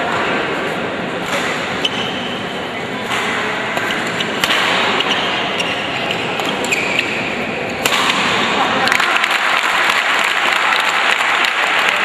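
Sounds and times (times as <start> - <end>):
crowd murmur: 0.0 - 12.0
rackets striking shuttlecock: 1.2 - 10.4.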